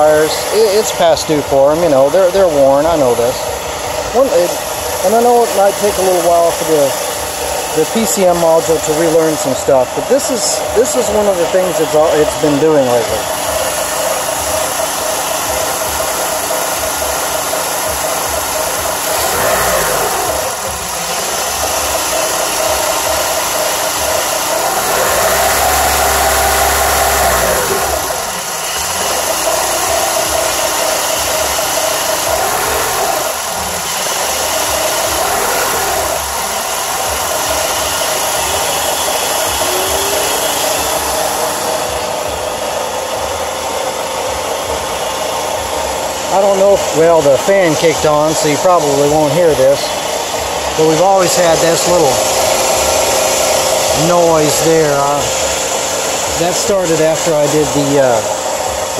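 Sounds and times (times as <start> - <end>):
car engine idling unevenly: 0.0 - 58.9
steady rushing noise: 17.8 - 47.7.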